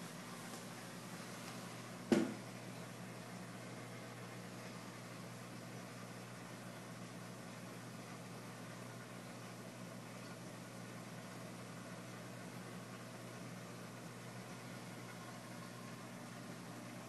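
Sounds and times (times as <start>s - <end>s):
aquarium equipment humming: 0.0s - 17.0s.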